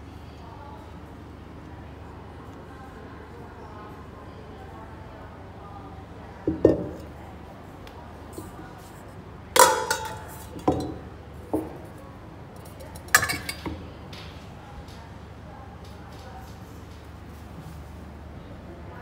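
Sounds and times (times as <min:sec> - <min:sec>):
metal bowls clanking: 0:09.6 - 0:11.7, 0:13.0 - 0:13.8.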